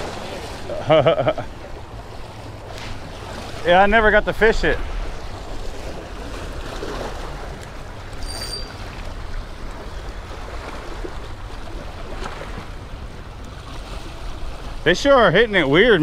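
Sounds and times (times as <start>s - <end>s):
waves splashing against rocks: 0.0s - 16.0s
short high chirp: 8.2s - 8.8s.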